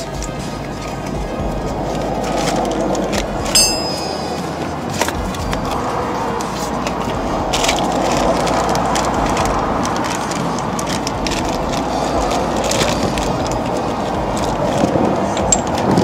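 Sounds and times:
steady rushing noise: 0.0 - 16.0
plastic bag crinkling: 7.6 - 15.8.

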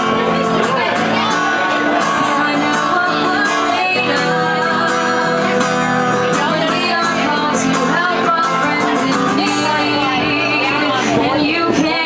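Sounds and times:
acoustic guitar strumming: 0.0 - 12.0
person singing: 0.0 - 12.0.

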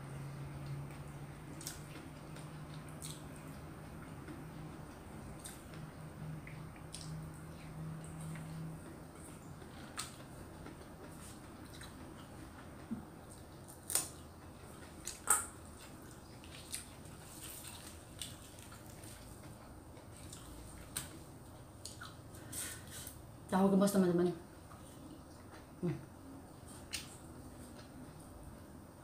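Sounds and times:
person chewing: 0.6 - 4.7, 6.4 - 21.2.

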